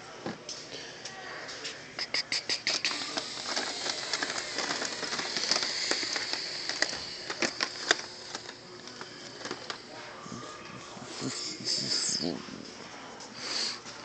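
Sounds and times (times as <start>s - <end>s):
crackling packaging rustle: 2.6s - 10.0s.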